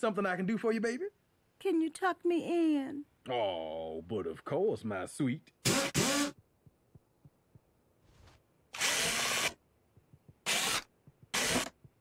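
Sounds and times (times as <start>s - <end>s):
power drill driving screws: 5.6s - 6.4s, 8.7s - 9.6s, 10.4s - 11.8s.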